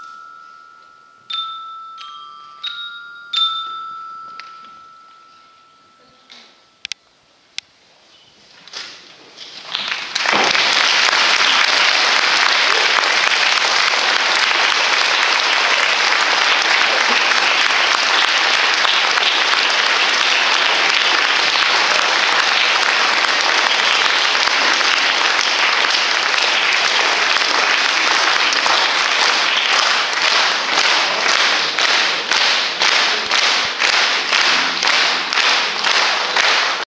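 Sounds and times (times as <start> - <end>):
rhythmic clapping in unison: 0.0 - 5.2, 9.6 - 36.9
audience applause: 9.6 - 36.9.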